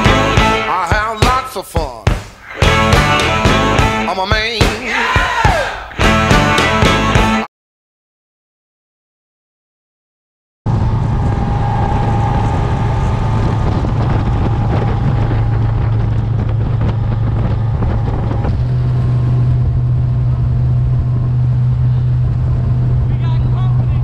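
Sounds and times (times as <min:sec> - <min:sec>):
motorboat engine running: 0:10.7 - 0:24.0
wind buffeting microphone: 0:10.7 - 0:24.0.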